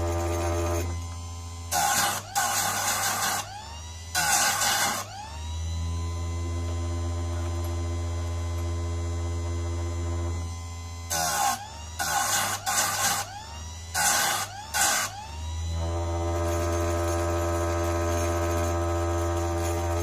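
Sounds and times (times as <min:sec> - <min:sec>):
grinding wheel grinding metal: 0:00.0 - 0:03.5, 0:04.1 - 0:05.1, 0:11.1 - 0:13.3, 0:13.9 - 0:20.0
sharpener motor running: 0:00.0 - 0:20.0.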